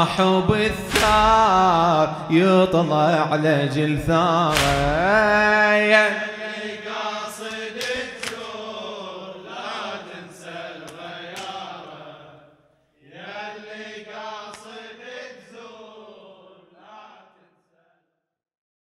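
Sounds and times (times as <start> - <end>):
man chanting unaccompanied: 0.0 - 8.1.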